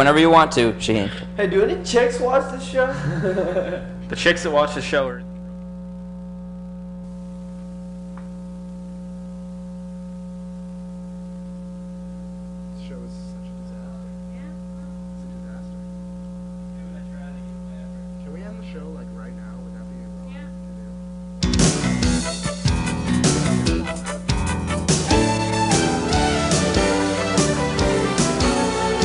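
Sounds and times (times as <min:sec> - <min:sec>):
electrical mains hum: 0:00.0 - 0:29.0.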